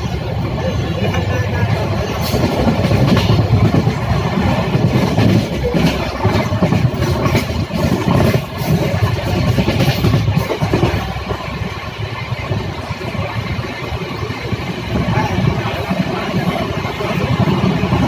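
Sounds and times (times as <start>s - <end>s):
train clattering: 0.0s - 18.0s
train wheels rumbling on track: 0.0s - 18.0s.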